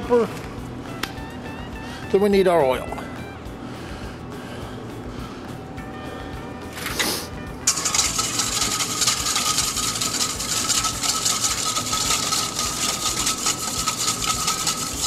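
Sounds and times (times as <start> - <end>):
bowl rattling on table: 7.7 - 15.0
whisk scraping bowl: 7.7 - 15.0.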